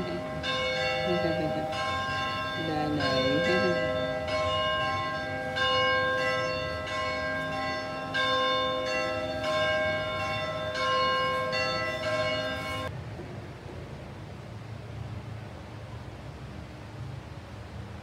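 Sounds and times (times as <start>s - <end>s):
bells ringing: 0.0s - 12.9s.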